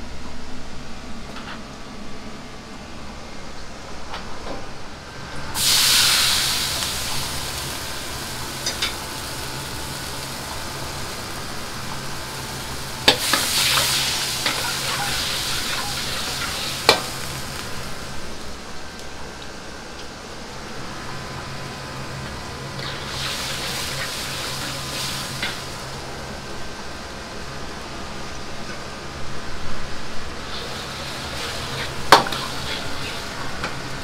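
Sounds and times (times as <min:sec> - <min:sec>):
gas burner rumble: 0:00.0 - 0:34.0
liquid sizzling in hot wok: 0:05.5 - 0:19.5, 0:20.2 - 0:27.8, 0:29.9 - 0:34.0.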